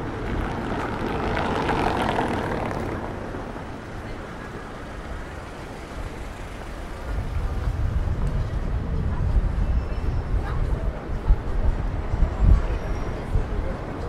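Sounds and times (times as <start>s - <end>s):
vehicle passing: 0.0s - 8.8s
low traffic rumble: 0.0s - 14.0s.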